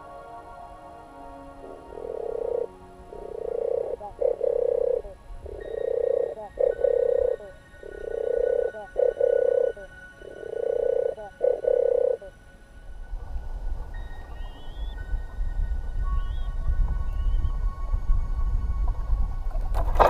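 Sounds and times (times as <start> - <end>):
dove purring song: 0.0 - 12.5, 13.3 - 15.4, 16.0 - 17.6.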